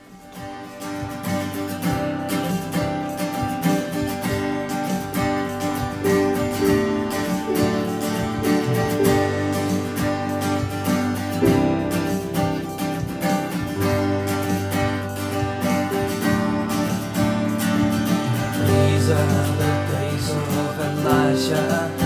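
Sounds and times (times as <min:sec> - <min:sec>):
acoustic guitar strumming: 0:00.0 - 0:22.0.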